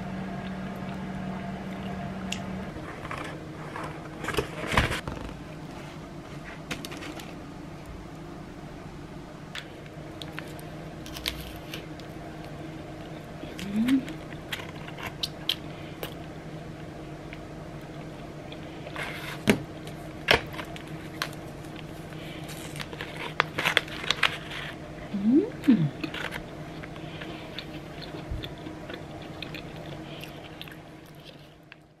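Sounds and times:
low hum: 0.0 - 32.0
crunchy chewing: 25.9 - 31.9.

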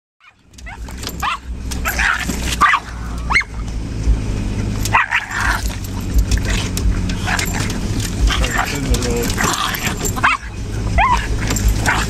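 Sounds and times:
small dog barking and yipping: 0.2 - 3.7, 4.8 - 12.0
vehicle rumble: 0.2 - 12.0.

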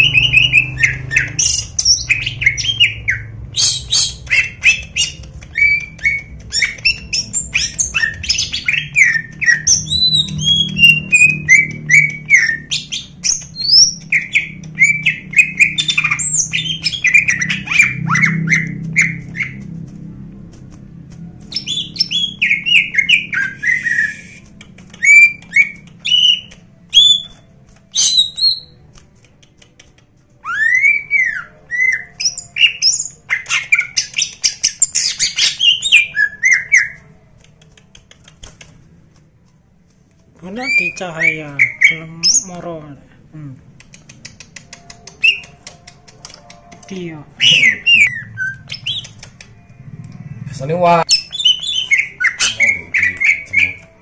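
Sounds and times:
bird singing harsh chirps: 0.0 - 19.8, 21.4 - 28.8, 30.4 - 37.1, 40.5 - 42.7, 47.3 - 49.6, 50.8 - 54.0.

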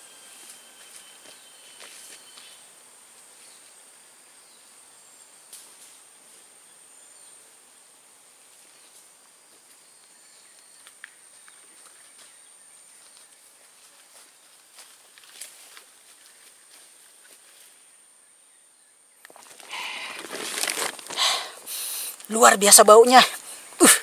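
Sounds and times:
high-pitched insect drone: 0.0 - 2.7
faint ticks and snaps: 10.0 - 11.7.

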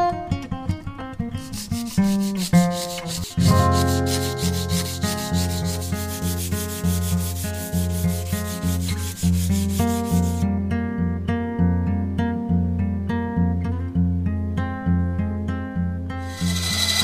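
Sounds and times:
guitar background music: 0.0 - 17.0
sandpaper rubbing on steel: 1.4 - 10.4, 16.2 - 17.0.

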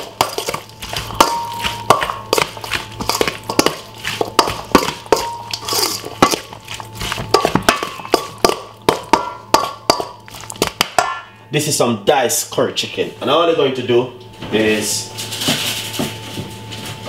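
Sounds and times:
metal spoon scraping steel bowl: 0.2 - 10.0.

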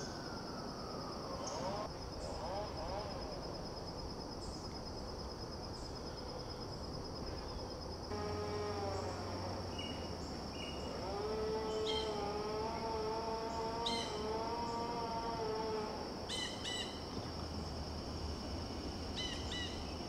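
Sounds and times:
insect chorus: 0.0 - 20.0
level hum-like tone: 8.1 - 20.0.

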